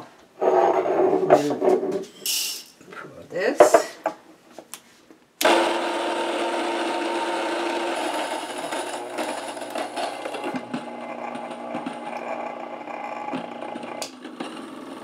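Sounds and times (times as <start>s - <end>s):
electric grain mill grinding: 5.4s - 15.0s.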